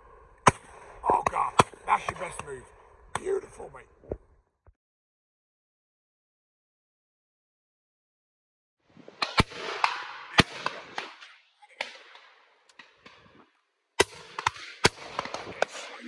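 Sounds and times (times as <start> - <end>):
shotgun shots with rolling echo: 9.2 - 13.3, 14.0 - 16.0.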